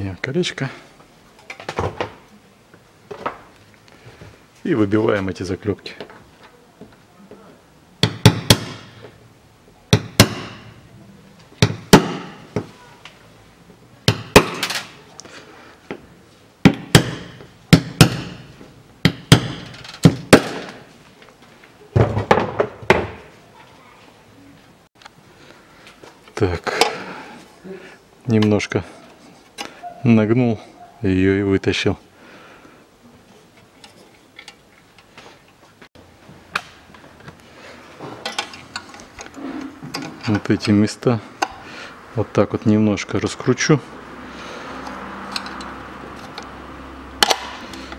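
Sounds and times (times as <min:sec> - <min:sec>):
hammer striking steel punch: 0:08.0 - 0:09.0, 0:09.9 - 0:10.7, 0:11.6 - 0:12.4, 0:14.1 - 0:14.7, 0:16.6 - 0:20.8.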